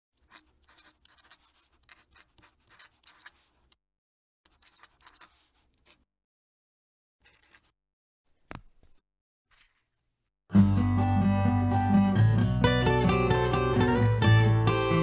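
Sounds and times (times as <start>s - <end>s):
pen nib scratching paper: 0.2s - 3.8s, 4.5s - 6.1s, 7.2s - 7.7s.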